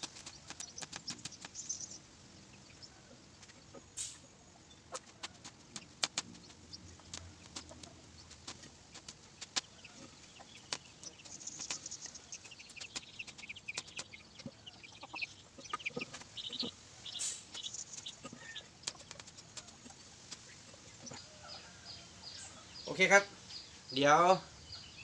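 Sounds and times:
chickens clucking: 0.0 - 23.2
sharp clicks: 5.0 - 9.7.

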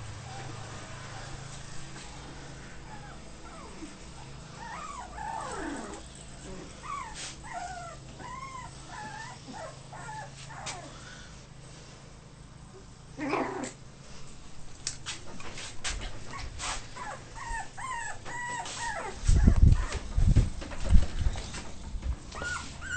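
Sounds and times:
puppies whimpering and yipping: 2.8 - 11.0, 16.2 - 20.2, 22.3 - 22.9.

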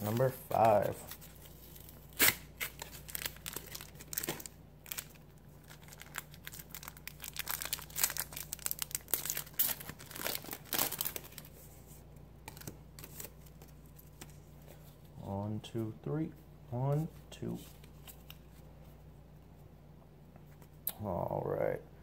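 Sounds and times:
foil wrapper tearing and crinkling: 2.1 - 11.5.

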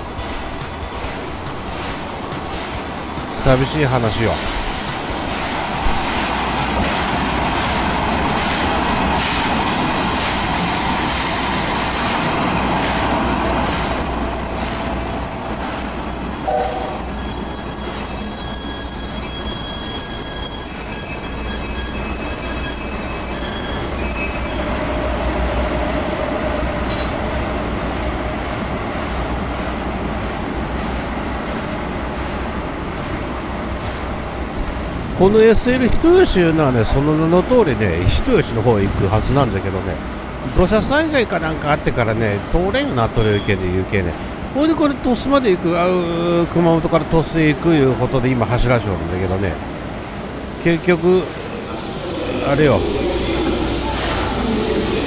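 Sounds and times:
train running on rails: 0.0 - 55.0
high-pitched wheel squeal: 13.7 - 26.0, 27.6 - 28.1, 43.0 - 44.3.

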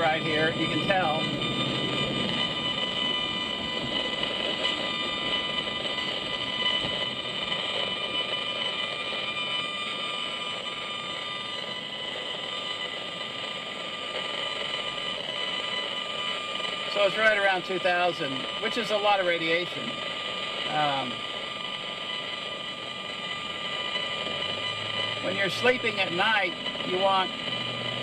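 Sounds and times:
meter speaker electronic buzz: 0.0 - 28.0
noisy hash: 0.0 - 28.0.

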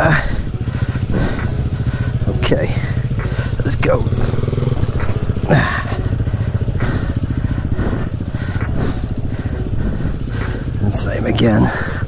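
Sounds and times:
dirt bike engine running: 0.0 - 12.0.

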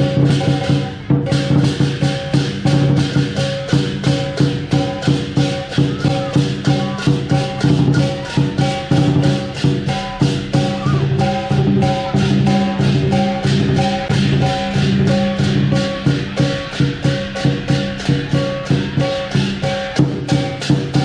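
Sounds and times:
cymbal clashes: 0.0 - 21.0
drum beat: 0.0 - 21.0
ringing gong: 0.0 - 21.0.

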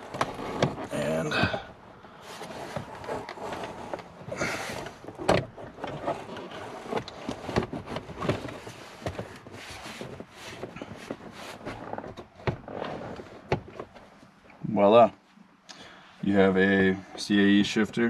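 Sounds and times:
clothing rustle: 0.0 - 14.4.

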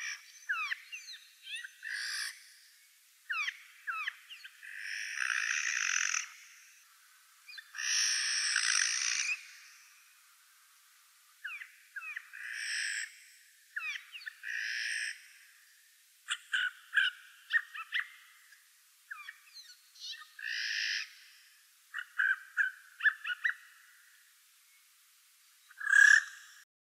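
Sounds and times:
sharp clicking bird calls: 0.0 - 2.5, 3.3 - 6.7, 7.5 - 10.0, 11.4 - 13.2, 13.8 - 15.3, 16.2 - 18.2, 19.1 - 21.3, 21.9 - 23.8, 25.7 - 26.6.

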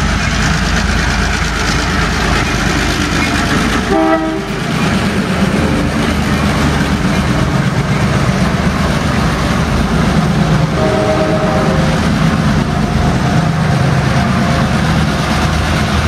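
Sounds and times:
diesel locomotive rumble: 0.0 - 16.0
locomotive horn blast: 3.9 - 4.6, 10.7 - 12.1.

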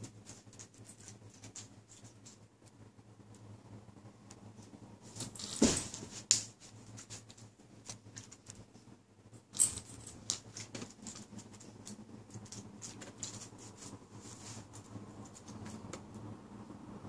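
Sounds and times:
dog paws scratching on carpet: 0.0 - 2.5, 10.0 - 16.0
rustles: 4.3 - 16.2.

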